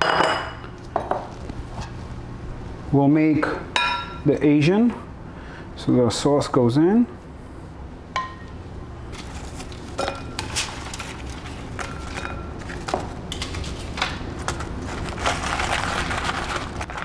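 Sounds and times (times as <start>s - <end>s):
rustling and scraping in a bowl: 9.1s - 17.0s.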